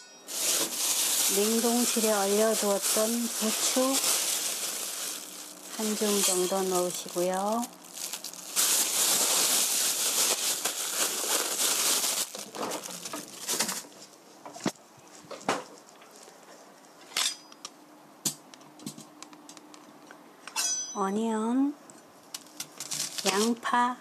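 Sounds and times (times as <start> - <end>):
plastic bag crinkling: 0.3 - 14.1, 22.4 - 23.6.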